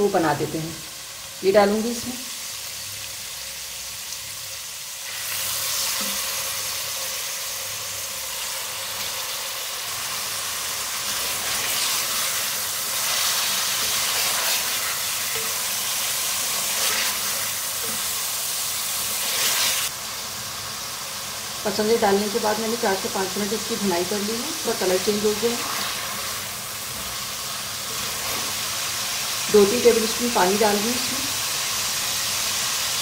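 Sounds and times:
meat sizzling in hot oil: 0.0 - 33.0.

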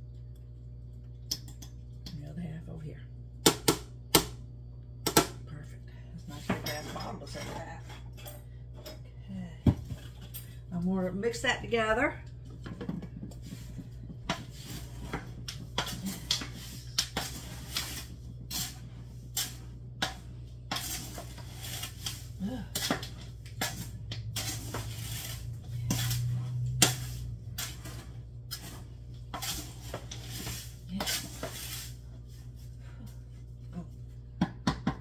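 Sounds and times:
steady low hum: 0.0 - 35.0
spoon scraping metal pot: 14.3 - 32.1.

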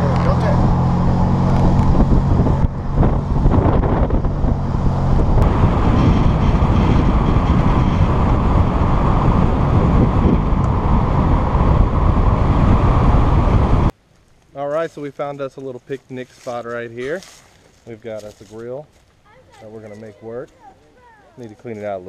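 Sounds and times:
engine hum: 0.0 - 14.0
road and wind noise: 0.0 - 14.6, 15.3 - 22.0.

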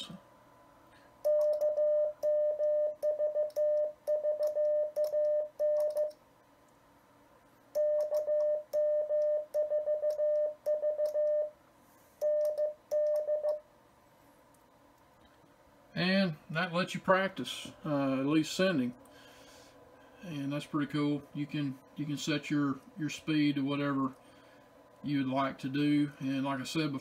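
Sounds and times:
morse code tone: 1.3 - 6.2, 7.8 - 11.5.

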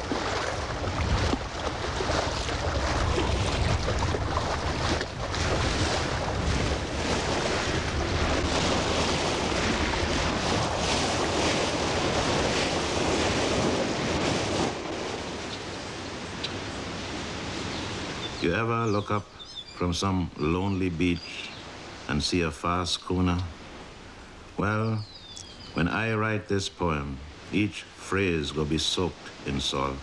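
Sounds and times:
water splashing against boat: 0.0 - 18.4
wind buffeting microphone: 0.0 - 18.4.

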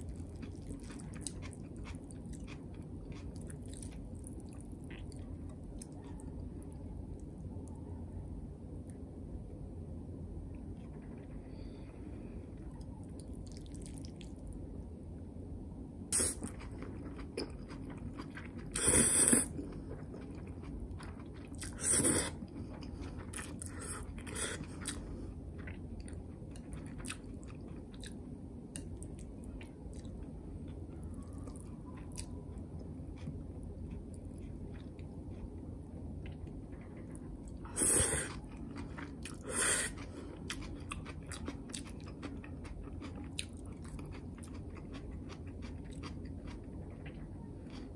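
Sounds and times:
person chewing with clicks: 0.0 - 7.3, 16.1 - 25.0, 25.6 - 35.6, 36.2 - 47.9.

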